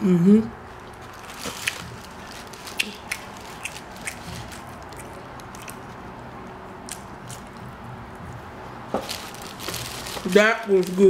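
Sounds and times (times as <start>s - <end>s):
person chewing food: 0.9s - 8.5s.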